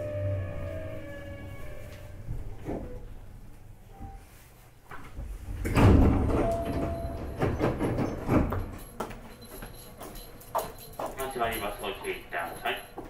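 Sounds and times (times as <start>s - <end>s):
thuds and rattles: 5.1s - 11.2s
train doors sliding open: 5.2s - 8.8s.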